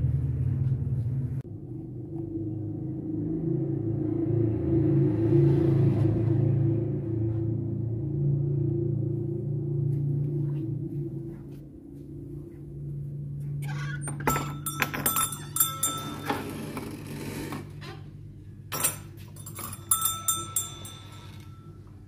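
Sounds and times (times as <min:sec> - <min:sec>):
low steady hum: 0:00.0 - 0:22.0
metallic jingling and clinking: 0:14.2 - 0:16.8, 0:18.7 - 0:21.9.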